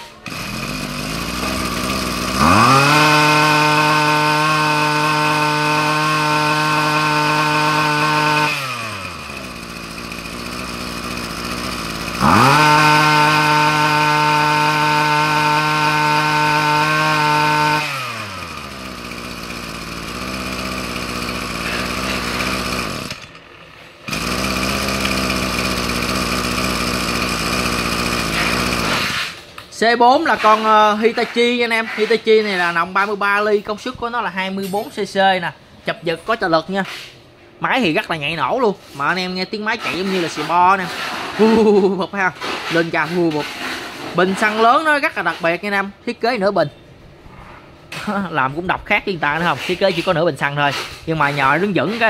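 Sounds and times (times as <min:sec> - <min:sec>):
brushcutter engine revving: 0:00.0 - 0:29.4, 0:39.8 - 0:44.8.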